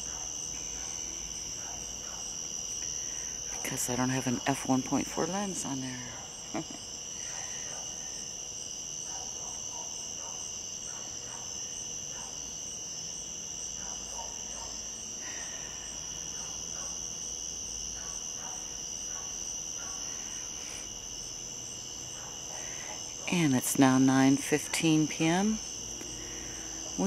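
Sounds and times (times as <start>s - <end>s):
crickets and insects trilling: 0.0s - 27.0s.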